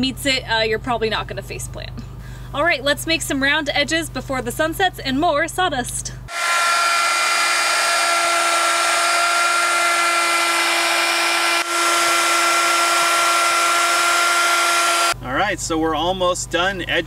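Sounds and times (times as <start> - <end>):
electric router whining: 6.3 - 15.2.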